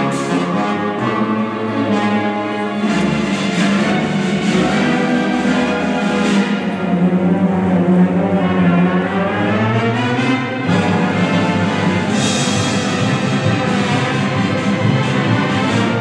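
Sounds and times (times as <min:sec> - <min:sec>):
brass quintet playing: 0:00.0 - 0:16.0
symphony orchestra playing: 0:00.0 - 0:16.0.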